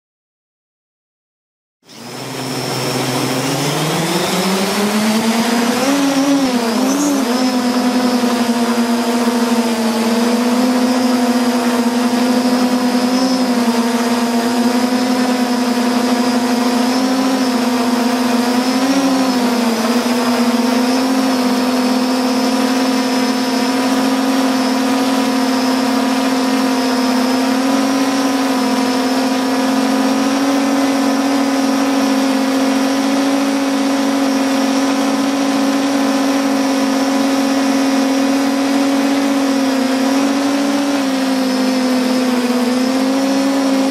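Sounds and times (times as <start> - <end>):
drone propellers humming: 1.8 - 43.9.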